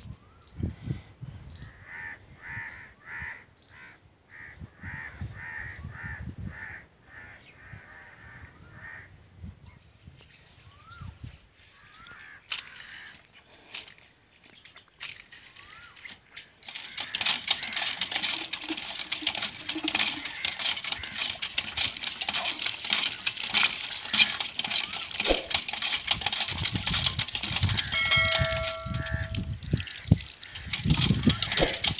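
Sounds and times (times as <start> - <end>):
water gushing and splashing: 16.6 - 31.9
bell-like chime: 28.0 - 29.4.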